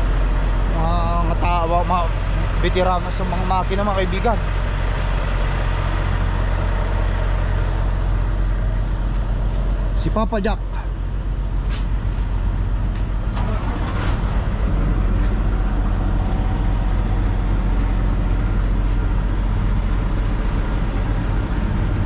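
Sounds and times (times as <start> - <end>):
diesel truck engine idling: 0.0 - 22.0.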